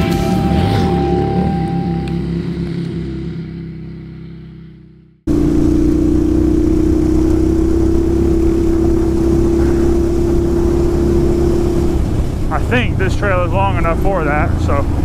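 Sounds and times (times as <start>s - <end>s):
intro music: 0.0s - 3.1s
motorcycle engine running: 0.0s - 15.0s
wind noise on microphone: 7.4s - 13.2s.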